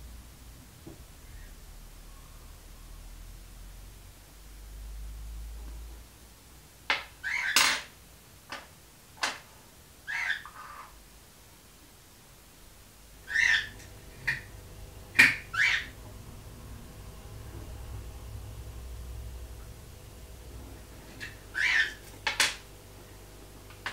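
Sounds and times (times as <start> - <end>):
small bird chirping: 7.2 - 7.6, 13.2 - 14.5, 15.2 - 16.0, 21.2 - 22.0.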